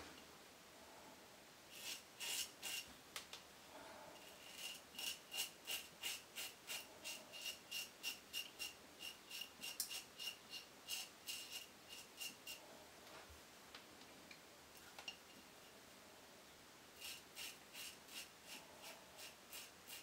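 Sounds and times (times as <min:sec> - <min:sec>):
razor scraping stubble: 0:01.7 - 0:02.9, 0:04.2 - 0:12.6, 0:17.0 - 0:20.0.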